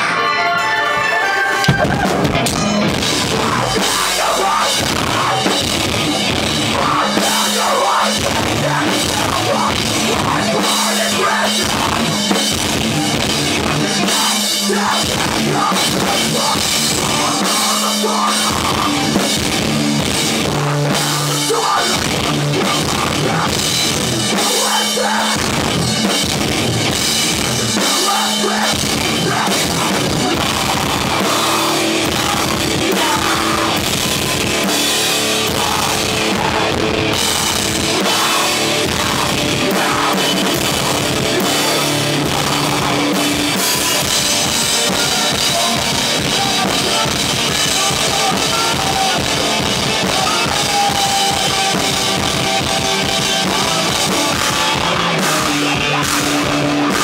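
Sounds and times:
live rock band: 0.0 - 57.0.

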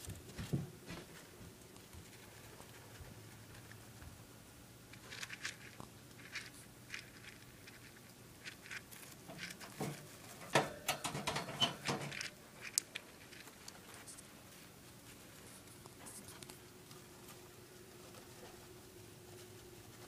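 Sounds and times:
hamster claws clicking and scratching: 4.9 - 14.6.

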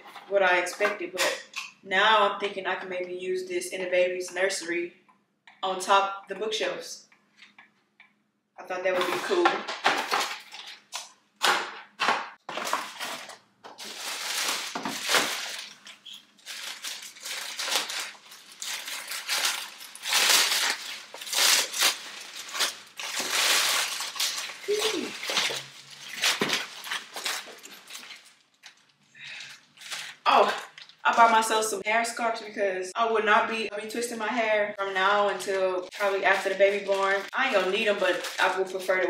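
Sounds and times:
packaging crinkling and rustling: 9.0 - 31.3, 35.2 - 39.0.

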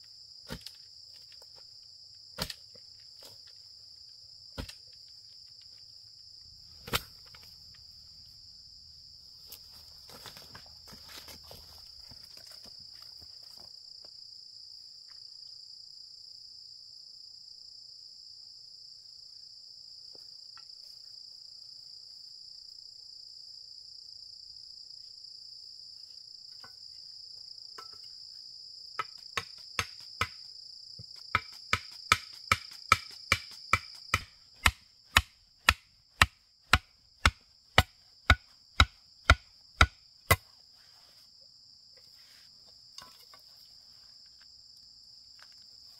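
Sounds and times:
sharp chopping blows: 29.0 - 30.4, 31.3 - 40.4.

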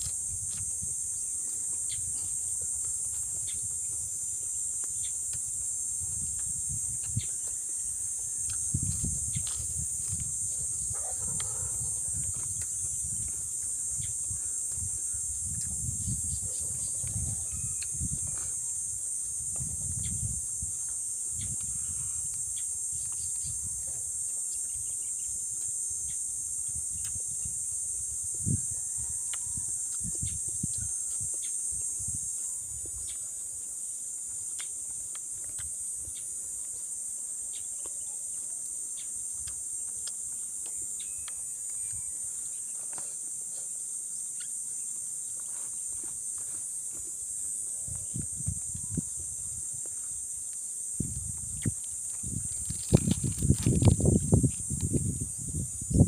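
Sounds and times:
insects chorus: 0.0 - 56.0
chewing and eating: 8.4 - 10.2, 39.3 - 41.8.

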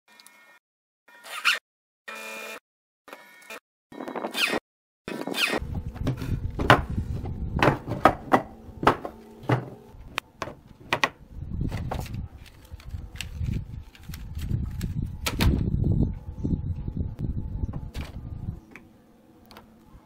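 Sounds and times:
wooden boards knocking on table: 7.6 - 9.8, 10.4 - 11.2.

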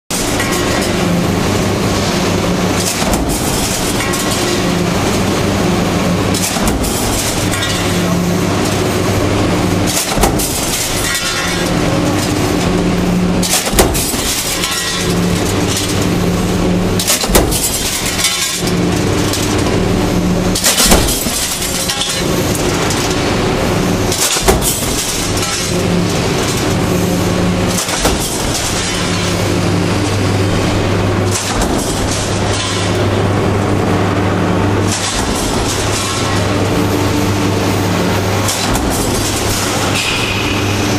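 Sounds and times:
factory noise: 0.1 - 40.9
low machine hum: 0.1 - 40.9
stamping press knocking: 9.9 - 11.6, 13.4 - 14.4, 24.1 - 25.3.

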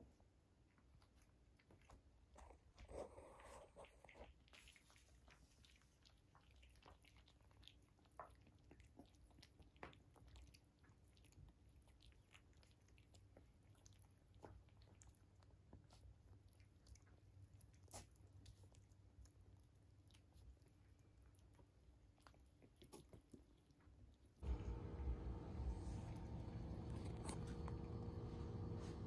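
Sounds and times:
puppies lapping and chewing: 0.0 - 29.0
small clicks and smacks: 3.8 - 29.0.

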